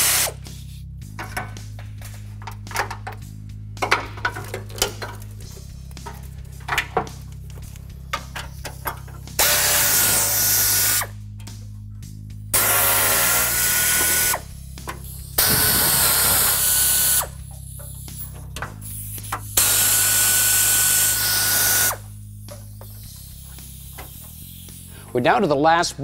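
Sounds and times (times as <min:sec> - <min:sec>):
air ratchet whirring: 0:00.0 - 0:01.7, 0:04.5 - 0:25.6.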